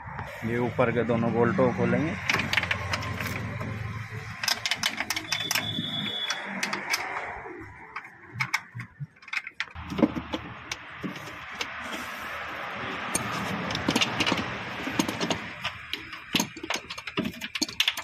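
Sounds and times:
ratchet wrench clicking: 0:04.3 - 0:07.3.

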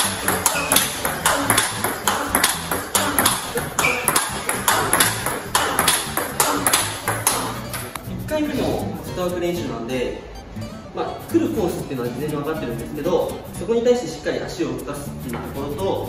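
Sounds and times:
table tennis ball clicks: 0:00.0 - 0:08.0.

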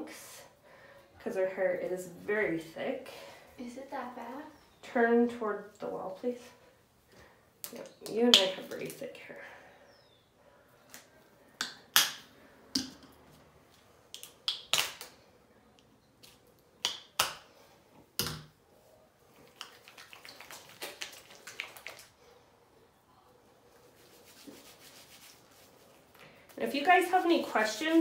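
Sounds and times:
wet squelching of hair: 0:19.3 - 0:22.2, 0:24.0 - 0:26.0.

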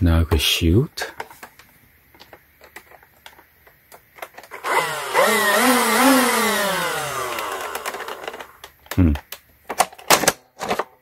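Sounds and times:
blaster flywheel motors whining: 0:04.5 - 0:08.6.

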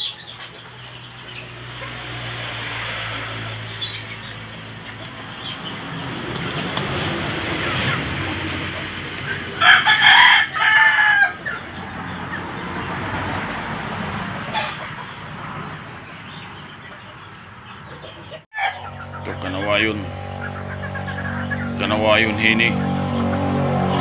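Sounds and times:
rooster crowing: 0:09.5 - 0:12.2, 0:18.5 - 0:19.1.

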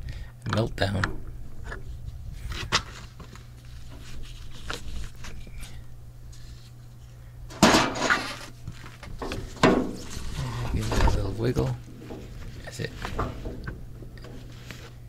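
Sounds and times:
low hum: 0:00.0 - 0:15.0
metal clatter: 0:07.5 - 0:08.4, 0:09.2 - 0:15.0.

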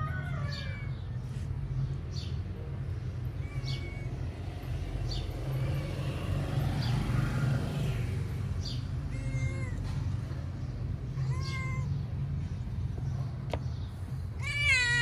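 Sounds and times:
cat meowing: 0:00.0 - 0:01.2, 0:03.3 - 0:04.6, 0:09.0 - 0:10.1, 0:11.1 - 0:12.1, 0:14.4 - 0:15.0.

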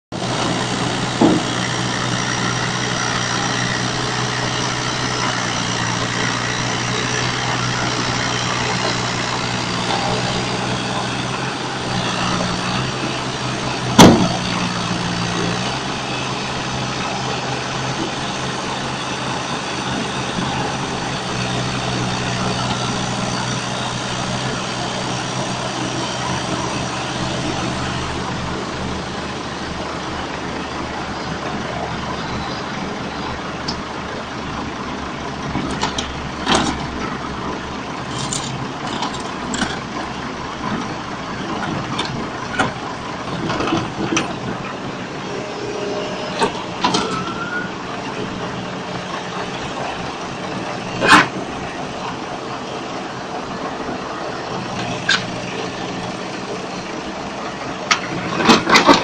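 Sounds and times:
steel tracks knocking on trailer: 0:00.1 - 0:23.8
diesel engine running: 0:00.1 - 0:59.0.

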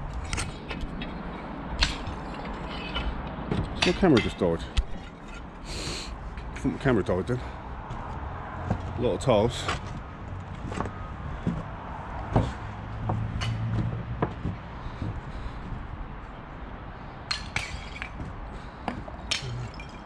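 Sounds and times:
footsteps on wooden boards: 0:01.9 - 0:04.2, 0:07.8 - 0:09.0, 0:09.6 - 0:16.4, 0:17.4 - 0:19.3.

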